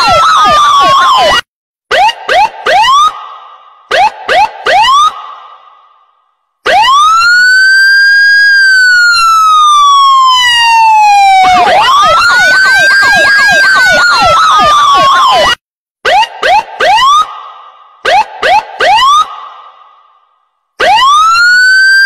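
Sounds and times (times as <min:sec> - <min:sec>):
electronic siren wail: 0:00.0 - 0:03.2, 0:03.9 - 0:05.2, 0:06.6 - 0:17.3, 0:18.0 - 0:19.3, 0:20.8 - 0:22.0
siren yelp: 0:00.0 - 0:03.2, 0:03.9 - 0:05.4, 0:06.6 - 0:17.4, 0:18.0 - 0:19.5, 0:20.8 - 0:22.0
short rising siren whoops: 0:06.7 - 0:17.3, 0:20.8 - 0:22.0.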